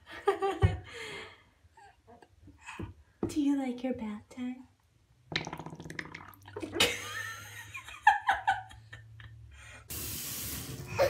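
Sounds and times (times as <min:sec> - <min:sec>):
tap water running: 0:05.4 - 0:07.1, 0:09.9 - 0:11.0.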